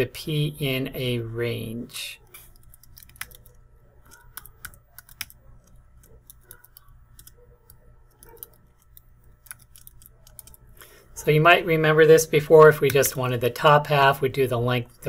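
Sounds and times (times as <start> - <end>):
keyboard key clicks: 2.6 - 10.6.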